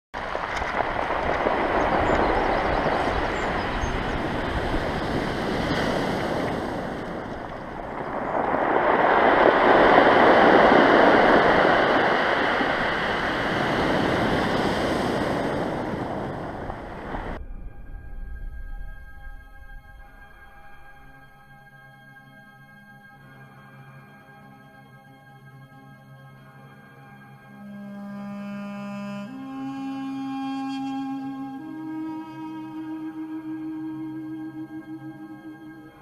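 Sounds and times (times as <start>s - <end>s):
sea waves breaking on pebbles: 0.2s - 17.4s.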